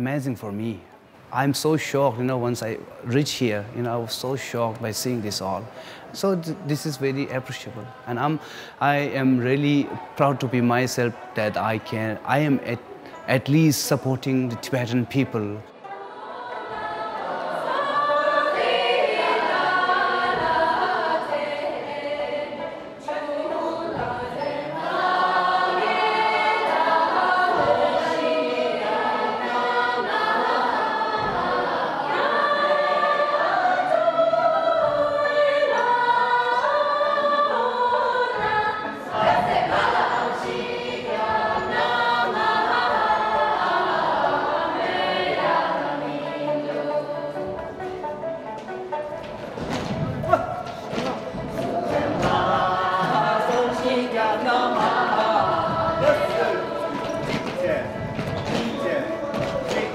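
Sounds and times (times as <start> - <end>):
group of voices singing: 14.0 - 48.2, 49.1 - 59.9.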